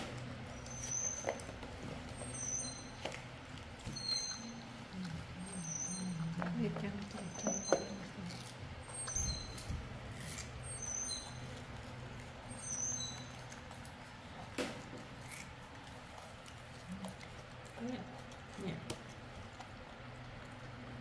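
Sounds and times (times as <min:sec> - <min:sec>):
low steady hum: 0:00.0 - 0:21.0
monkeys chewing and handling food: 0:00.0 - 0:21.0
high-pitched monkey chirps: 0:02.2 - 0:03.0, 0:05.4 - 0:06.2, 0:10.3 - 0:11.6, 0:12.4 - 0:13.5.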